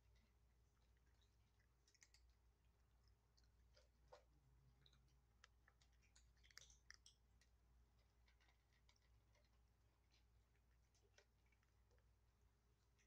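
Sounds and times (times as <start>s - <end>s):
kittens crunching dry kibble: 0.0s - 13.0s.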